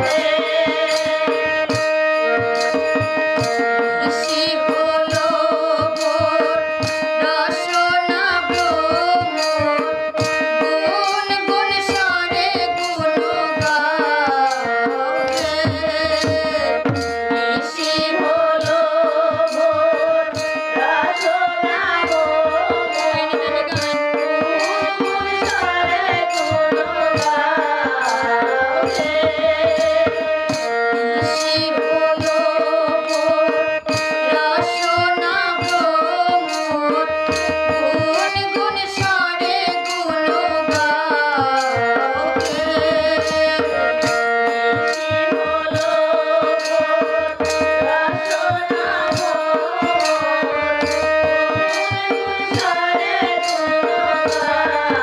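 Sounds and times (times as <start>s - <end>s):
held melody notes: 0.0s - 55.0s
person singing devotional song: 0.0s - 55.0s
tabla beat: 0.0s - 55.0s.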